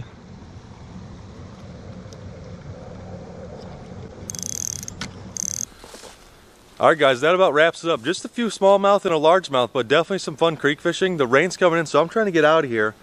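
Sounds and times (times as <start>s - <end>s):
fishing reel gears whirring: 4.2s - 5.7s
short higher rasps: 4.3s - 6.3s.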